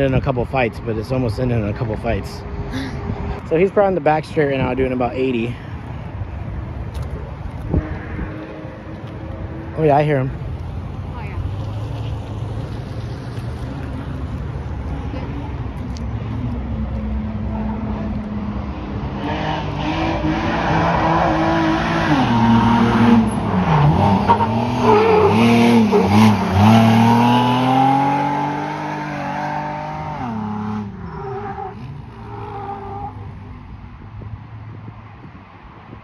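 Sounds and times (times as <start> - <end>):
truck engine revving: 19.2 - 33.0.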